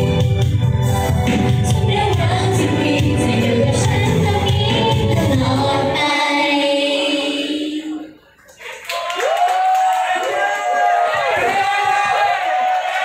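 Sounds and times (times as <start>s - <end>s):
amplified pop backing music: 0.0s - 8.1s
women singing together: 1.7s - 8.1s.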